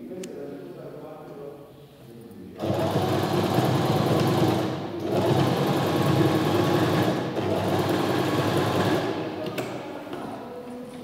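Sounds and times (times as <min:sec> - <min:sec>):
sewing machine stitching: 0:02.6 - 0:09.2.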